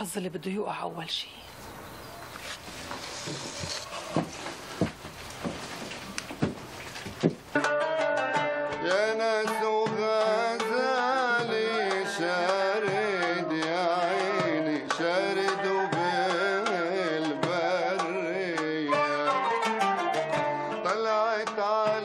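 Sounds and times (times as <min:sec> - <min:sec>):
oud: 0:07.5 - 0:22.0
qanun: 0:07.5 - 0:22.0
hand-drum percussion: 0:09.4 - 0:19.3.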